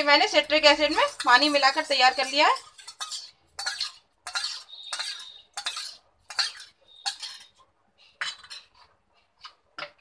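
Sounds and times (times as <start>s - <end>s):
spoon scraping steel bowl: 0.0s - 9.6s.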